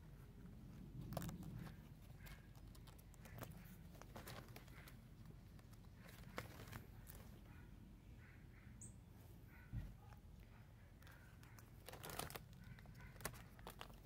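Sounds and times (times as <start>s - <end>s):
pages turning and rustling: 0.7s - 7.4s, 11.1s - 14.0s.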